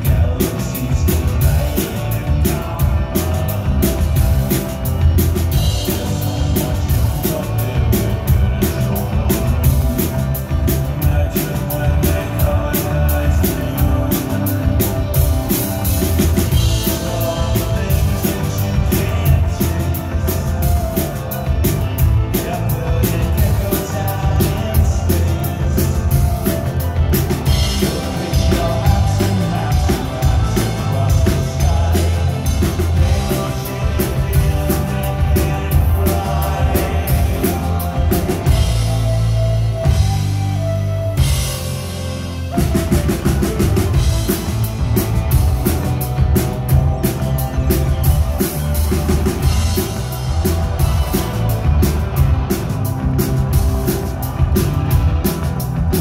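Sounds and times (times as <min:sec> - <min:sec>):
man singing: 0:00.0 - 0:40.4
drum kit: 0:00.0 - 0:56.0
electric bass: 0:00.0 - 0:56.0
electric guitar: 0:00.0 - 0:56.0
keyboards: 0:00.0 - 0:56.0.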